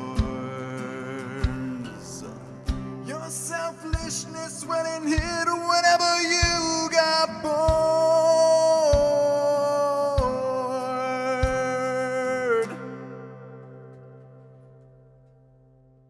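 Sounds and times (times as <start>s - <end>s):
low beat: 0.0s - 12.2s.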